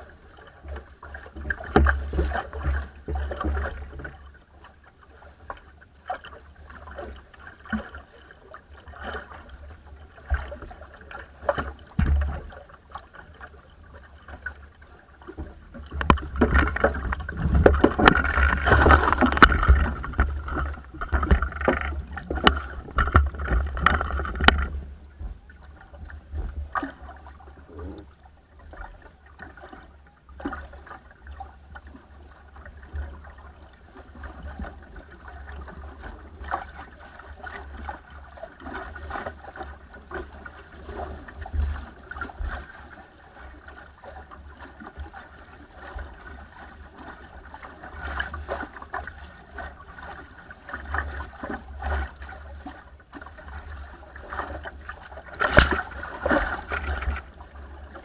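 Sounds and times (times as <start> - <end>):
water rushing along boat hull: 0.0 - 58.0.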